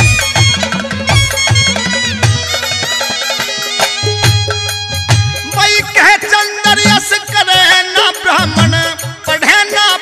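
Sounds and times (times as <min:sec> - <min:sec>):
drum strokes: 0:00.0 - 0:07.5
reedy folk melody: 0:00.0 - 0:10.0.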